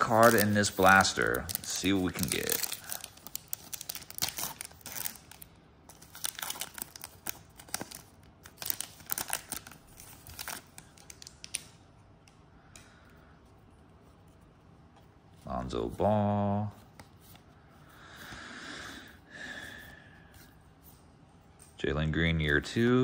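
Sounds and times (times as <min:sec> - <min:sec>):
wrapper tearing and crinkling: 0:00.0 - 0:11.7.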